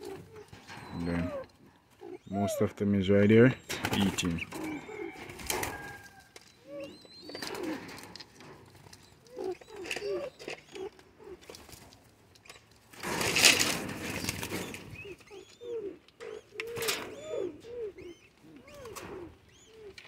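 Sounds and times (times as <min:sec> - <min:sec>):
pigeons cooing: 0:00.0 - 0:11.9, 0:13.0 - 0:20.0.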